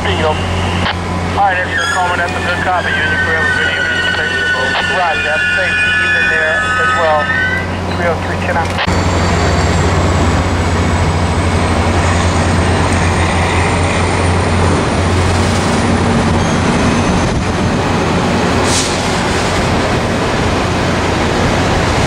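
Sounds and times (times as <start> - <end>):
train wheels rumbling on rails: 7.6 - 22.0.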